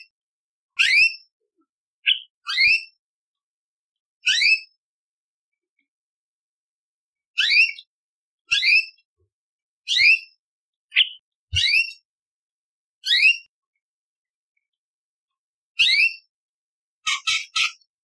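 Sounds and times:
bird whistled calls: 0.8 - 1.2, 2.0 - 2.9, 7.4 - 7.9, 8.5 - 9.0, 9.9 - 10.3, 10.9 - 12.0, 15.8 - 16.3.

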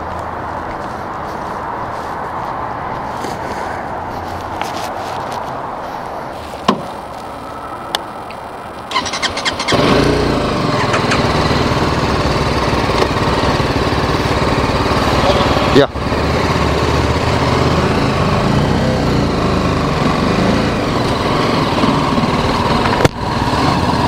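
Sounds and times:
electric starter cranking: 8.9 - 10.2
motorcycle engine running: 8.9 - 24.0
sharp clicks: 10.8 - 11.3.

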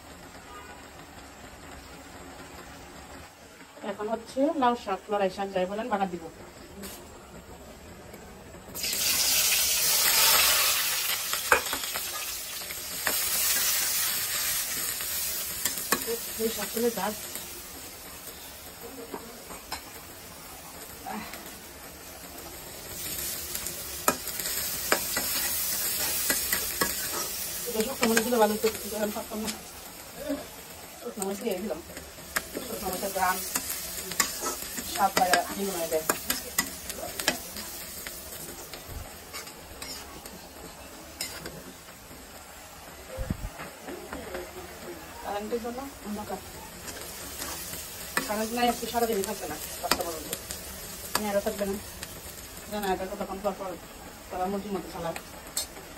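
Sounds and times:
onions sizzling in hot oil: 0.0 - 55.9
metal spatula scraping a pan: 24.0 - 29.6, 32.3 - 37.8, 39.3 - 40.2.

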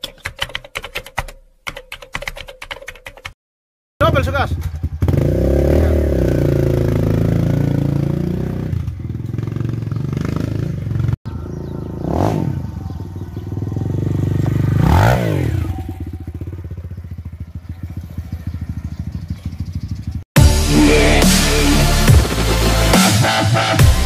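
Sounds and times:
motorcycle engine revving and idling: 4.0 - 24.0.

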